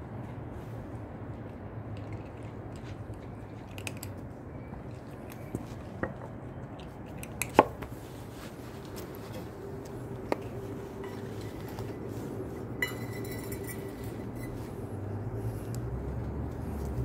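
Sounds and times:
cats crunching dry kibble: 0:00.6 - 0:12.8
steady low hum: 0:07.9 - 0:17.0.

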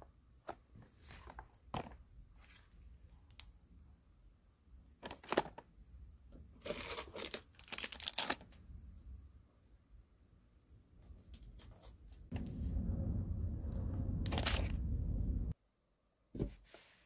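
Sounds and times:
plastic rustling and crinkling: 0:05.0 - 0:05.7, 0:06.6 - 0:08.6.

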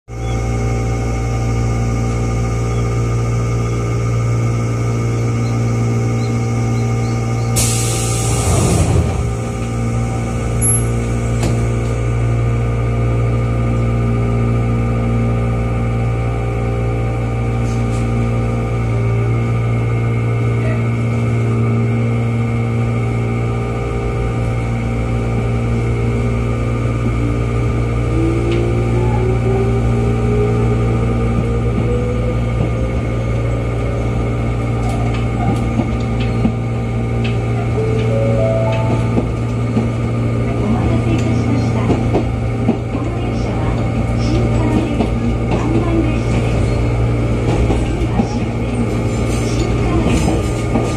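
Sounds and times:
railcar machinery hum: 0:00.1 - 0:50.9.

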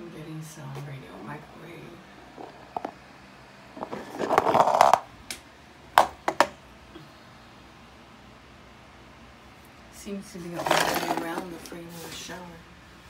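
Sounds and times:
scraping rub: 0:03.8 - 0:05.0.

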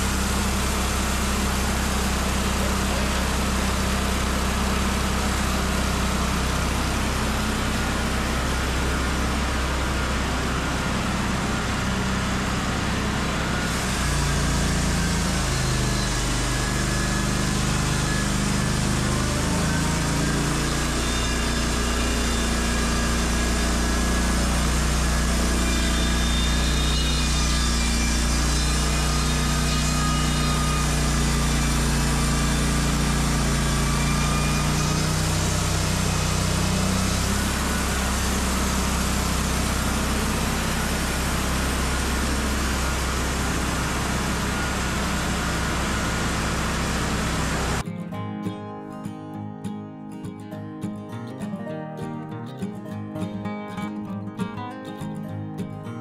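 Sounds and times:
band sawmill running: 0:00.0 - 0:47.8
saw blade hissing through wood: 0:13.7 - 0:47.8.

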